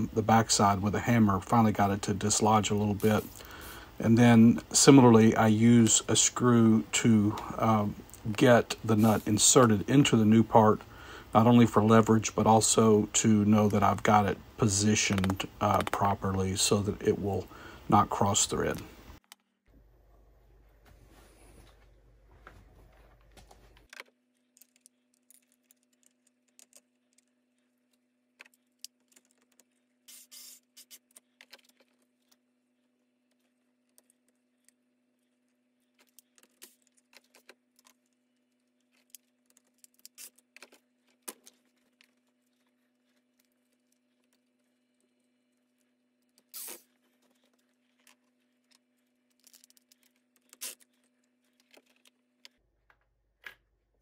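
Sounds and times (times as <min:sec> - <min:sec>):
faint steady hum: 0:00.0 - 0:30.1.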